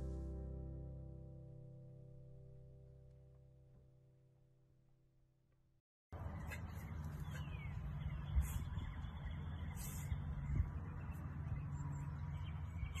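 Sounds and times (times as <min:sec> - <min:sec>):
low outdoor rumble: 0:06.2 - 0:13.0.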